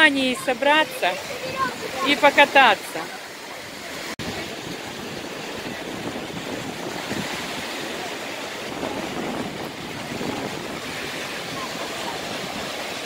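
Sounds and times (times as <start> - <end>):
waves breaking on sand: 0.0 - 13.0
wind on microphone: 3.9 - 13.0.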